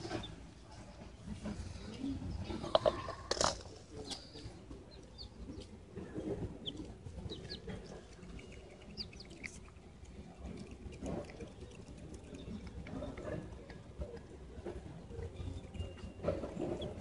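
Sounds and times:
chicks peeping: 0:00.0 - 0:00.4, 0:03.9 - 0:17.0.

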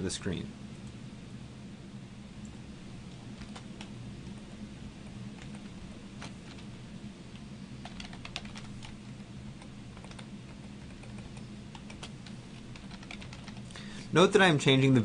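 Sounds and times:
faint low hum: 0:00.0 - 0:15.0
computer keyboard typing: 0:03.4 - 0:03.9, 0:05.3 - 0:06.7, 0:07.8 - 0:13.7.

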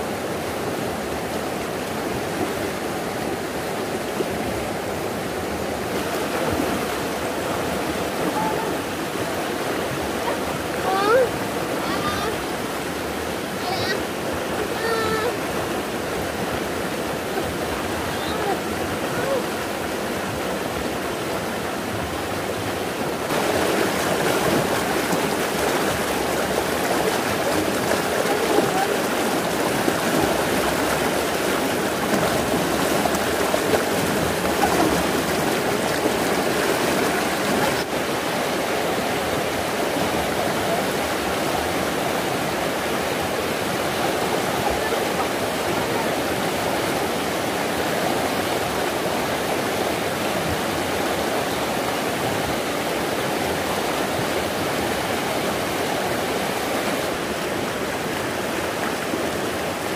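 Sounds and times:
stream water rushing over rocks: 0:00.0 - 0:59.9.

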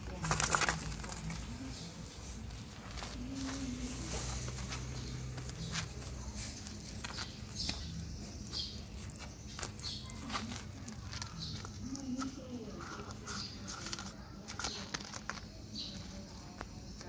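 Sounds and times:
baby monkey crawling on plastic mat: 0:00.0 - 0:17.0.

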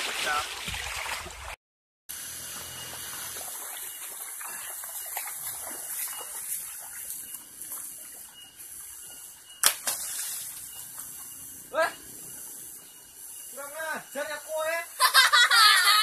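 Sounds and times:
stream flowing over stones: 0:02.2 - 0:07.2.

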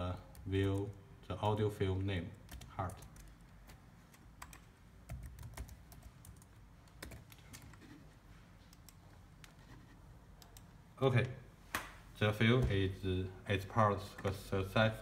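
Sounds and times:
faint laptop keyboard typing: 0:00.1 - 0:01.1, 0:02.0 - 0:11.4.

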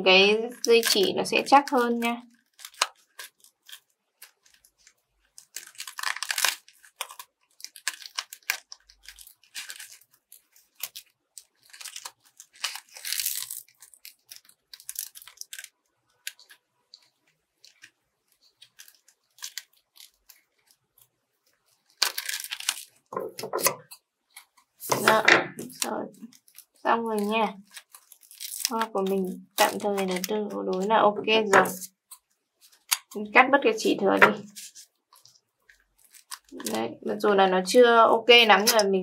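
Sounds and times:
foam netting crinkling: 0:24.3 - 0:33.3.

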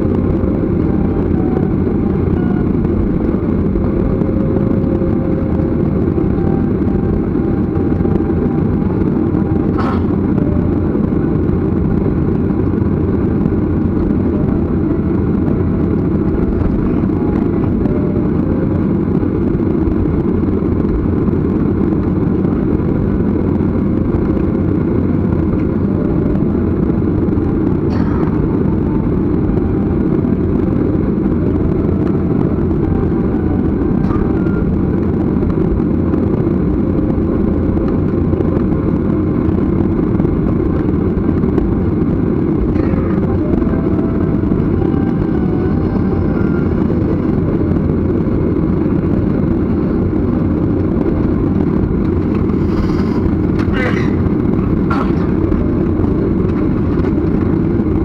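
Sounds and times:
jet cabin engine rumble: 0:00.0 - 0:58.0.

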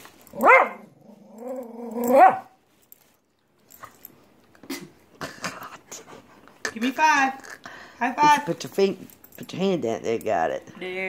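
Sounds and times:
dog whining: 0:00.4 - 0:02.5.

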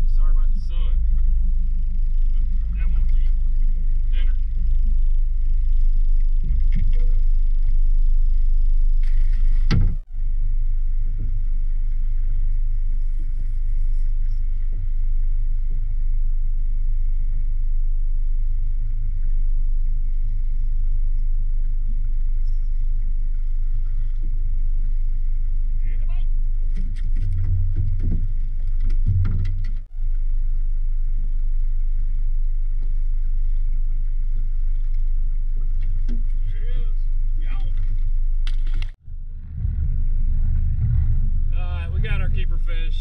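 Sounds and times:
wind buffeting microphone: 0:39.0 - 0:43.0.

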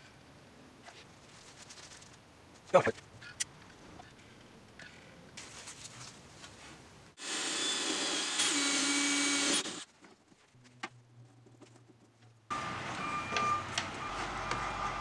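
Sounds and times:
electric power tool running: 0:07.2 - 0:09.8.

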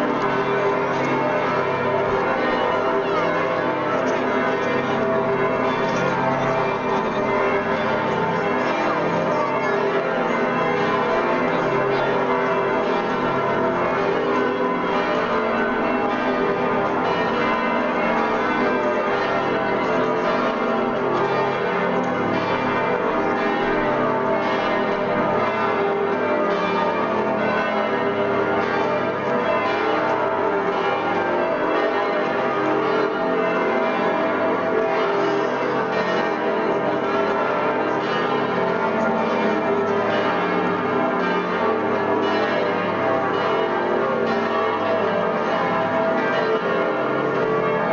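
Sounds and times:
church bells ringing: 0:00.0 - 0:47.9.

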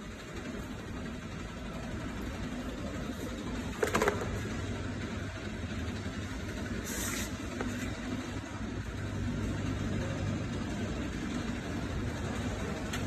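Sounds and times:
factory machinery humming: 0:00.0 - 0:13.0.

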